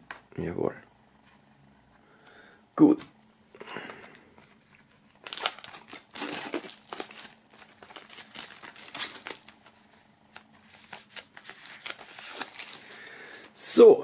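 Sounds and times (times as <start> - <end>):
plastic shrink-wrap crinkling: 4.6 - 13.5.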